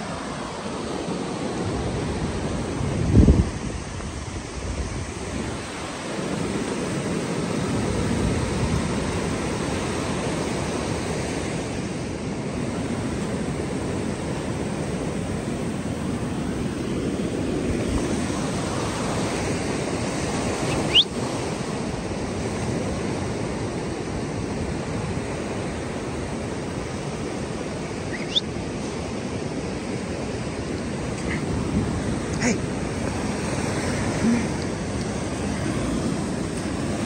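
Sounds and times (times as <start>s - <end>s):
ocean surf breaking: 0.0s - 37.0s
wind on microphone: 1.8s - 11.7s
high rising chirp: 28.1s - 28.5s.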